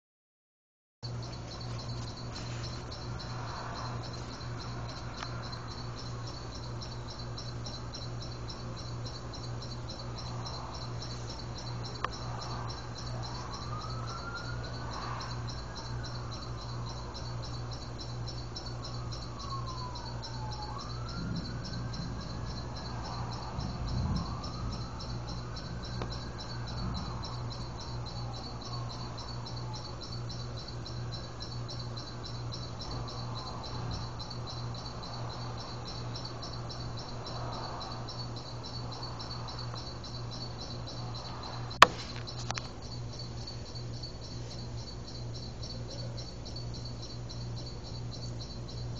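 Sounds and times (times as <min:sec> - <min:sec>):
insects chirping: 0:01.0 - 0:48.9
warning siren wailing: 0:01.3 - 0:37.6.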